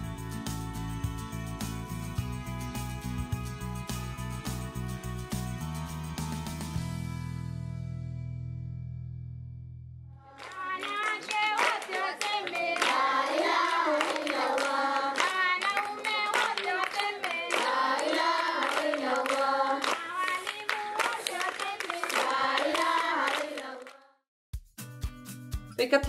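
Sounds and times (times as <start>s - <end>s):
children clapping: 10.3s - 24.0s
children singing together: 10.5s - 23.9s.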